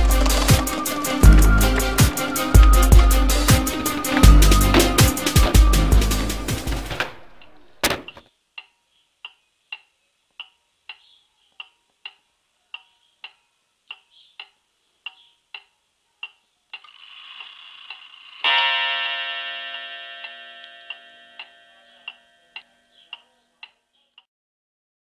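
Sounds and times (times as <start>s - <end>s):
clock striking ringing note: 0.0s - 7.6s, 18.4s - 22.6s
wall clock ticking: 0.0s - 11.0s, 12.8s - 23.8s.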